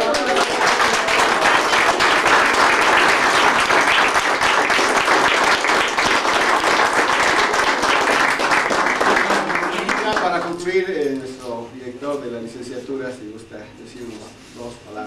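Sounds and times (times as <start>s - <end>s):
people applauding: 0.0s - 10.9s.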